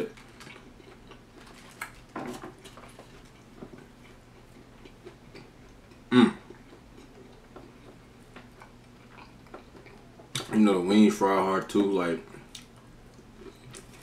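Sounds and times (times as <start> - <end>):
person chewing: 0.1 - 10.5, 12.4 - 14.0
short vocal sound: 6.1 - 6.4.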